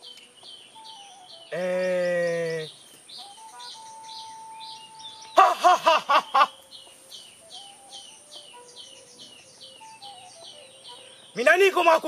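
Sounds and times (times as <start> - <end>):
cackling laughter: 5.4 - 6.6.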